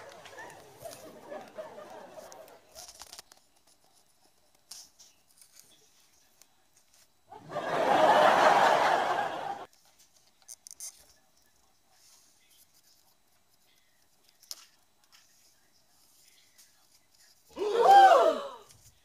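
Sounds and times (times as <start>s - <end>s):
audience laughter: 0.0s - 2.7s, 7.3s - 9.7s
scratches and rustles on cardboard: 0.0s - 7.2s, 9.7s - 17.5s.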